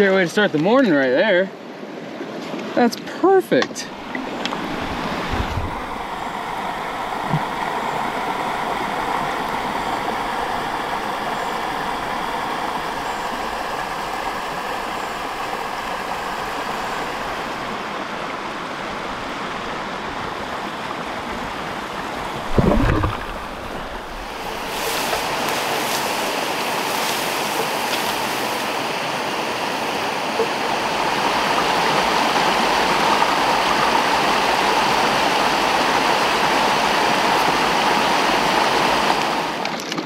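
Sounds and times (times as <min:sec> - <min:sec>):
stream running over rocks: 0:03.6 - 0:40.0
low thump: 0:22.5 - 0:23.5.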